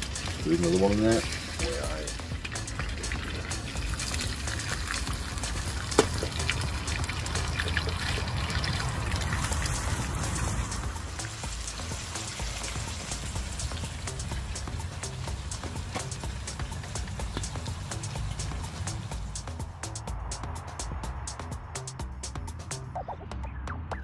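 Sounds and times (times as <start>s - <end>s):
meat sizzling in a frying pan: 0.0s - 16.4s.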